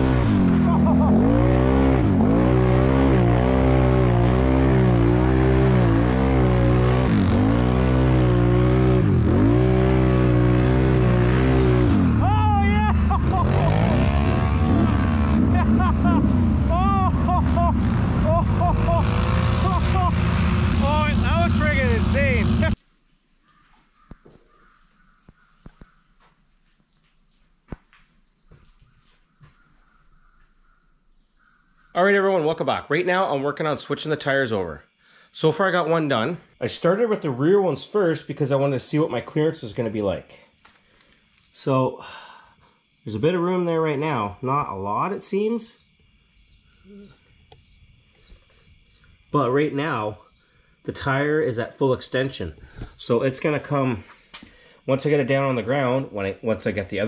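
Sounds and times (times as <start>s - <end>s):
atv engine running hard: 0.0s - 22.8s
high-pitched insect chorus: 19.8s - 57.0s.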